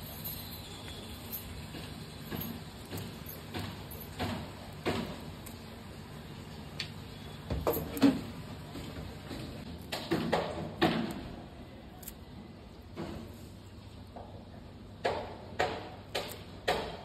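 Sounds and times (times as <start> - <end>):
kitchen knocks and clatter: 7.5 - 11.2.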